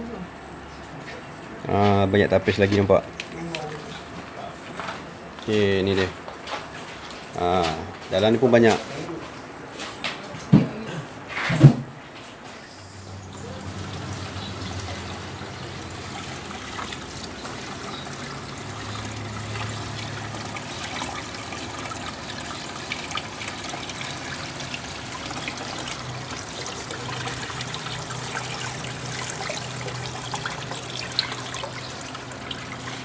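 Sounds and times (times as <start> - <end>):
water pouring through strainers: 13.2 - 33.0.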